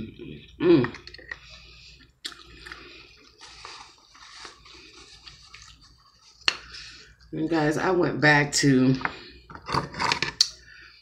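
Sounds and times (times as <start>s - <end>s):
person chewing: 0.4s - 7.3s.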